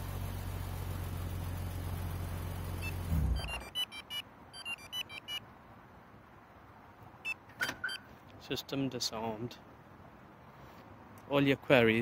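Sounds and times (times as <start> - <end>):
car engine idling: 0.0 - 3.6
short electronic beeps: 2.8 - 5.4, 7.2 - 8.1.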